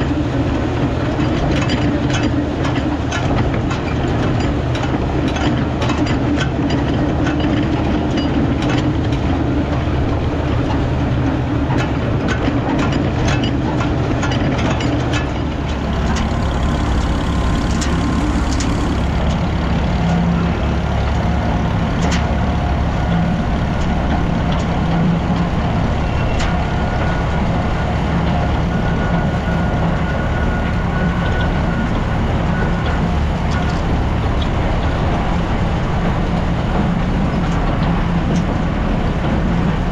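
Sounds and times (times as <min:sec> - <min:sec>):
tractor engine running: 0:00.0 - 0:39.9
chain rattling and clanking: 0:11.8 - 0:19.6.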